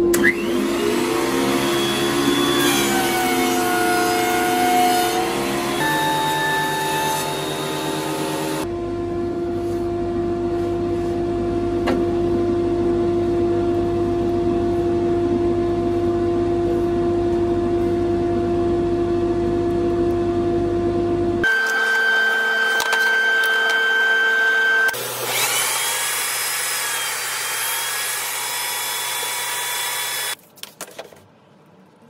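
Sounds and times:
thickness planer humming and whining: 0:00.0 - 0:15.1, 0:21.3 - 0:30.4.

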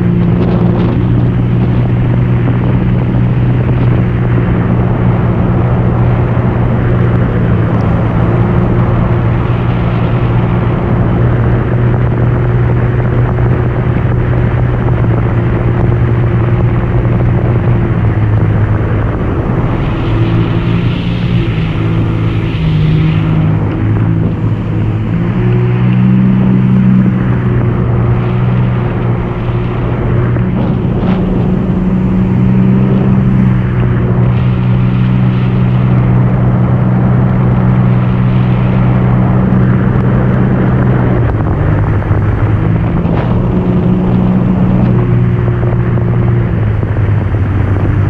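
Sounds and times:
watercraft engine drone: 0:00.0 - 0:48.0.

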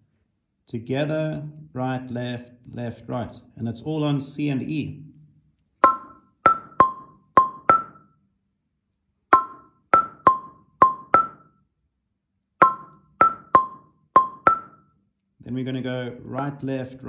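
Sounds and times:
marimba struck with mallets: 0:05.8 - 0:08.1, 0:09.3 - 0:11.6, 0:12.6 - 0:14.9.

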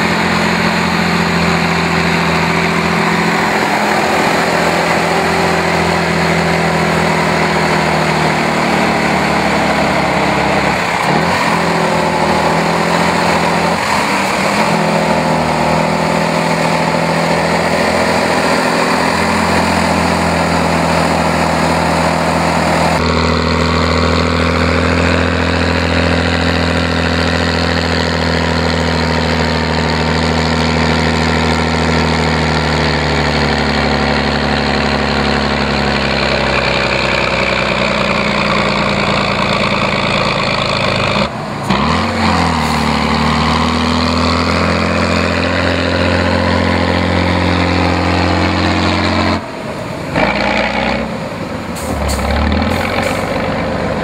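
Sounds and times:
diesel truck engine: 0:00.0 - 0:54.0.

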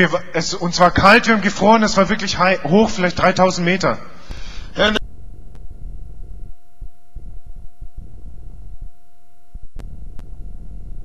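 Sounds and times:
low rumble: 0:04.5 - 0:11.0.

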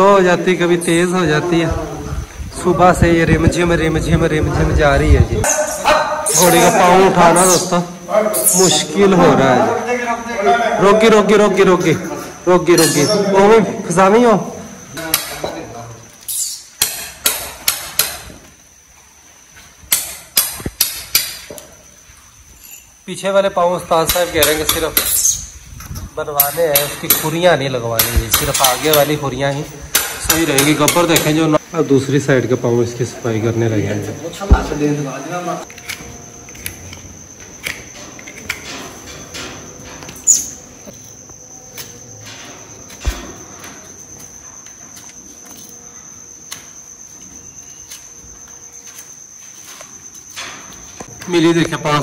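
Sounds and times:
thin high-pitched whine: 0:21.5 - 0:23.7, 0:28.2 - 0:52.0.

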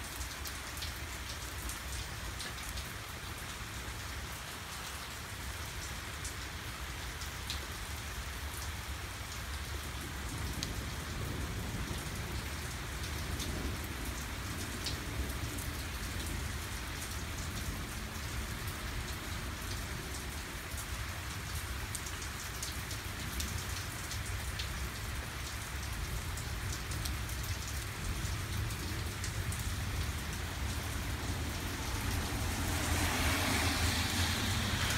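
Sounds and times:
heavy rain hissing: 0:28.6 - 0:34.9.

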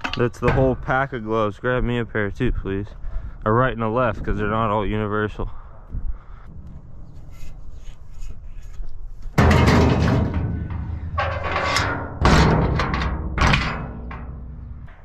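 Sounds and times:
metal door banging shut: 0:09.4 - 0:15.0.

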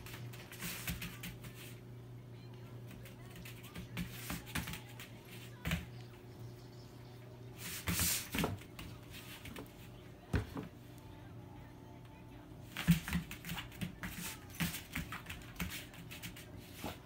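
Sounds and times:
faint steady hum: 0:00.0 - 0:13.0
puppy paws tapping on foam mats: 0:02.8 - 0:06.1, 0:12.7 - 0:17.0.

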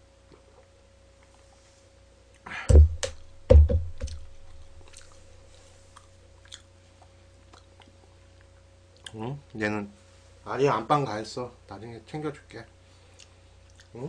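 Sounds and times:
faint chewing: 0:04.1 - 0:09.2, 0:13.1 - 0:14.0.

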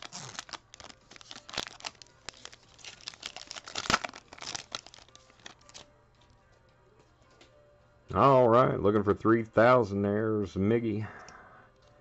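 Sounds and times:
foil wrapper tearing and crinkling: 0:00.0 - 0:05.8.

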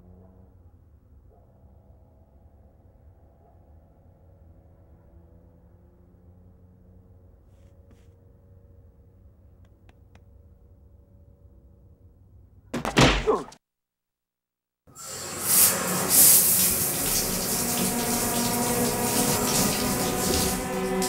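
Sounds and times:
loud sudden burst: 0:15.0 - 0:21.0
shower spraying: 0:15.0 - 0:21.0
held music tones: 0:15.8 - 0:21.0.

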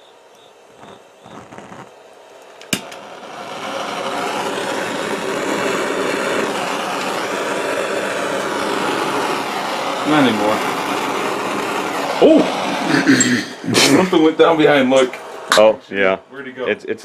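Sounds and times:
torch flame hissing: 0:00.0 - 0:16.7
gas torch igniter click: 0:00.3 - 0:07.4.

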